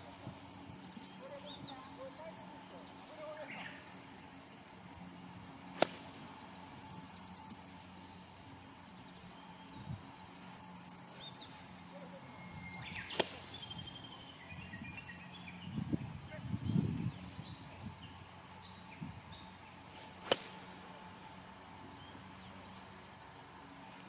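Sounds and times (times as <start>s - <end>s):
high insect hum: 0.0s - 24.0s
golf club striking sand: 5.7s - 6.3s, 13.0s - 13.6s, 20.0s - 20.8s
bird chirps: 10.7s - 19.8s.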